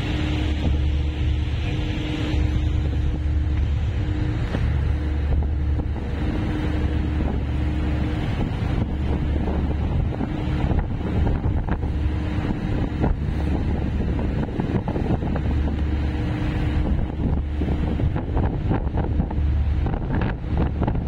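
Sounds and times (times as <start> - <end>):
sea water rushing along hull: 0.0 - 21.0
ship engines droning: 0.0 - 21.0
wind buffeting microphone: 0.0 - 21.0.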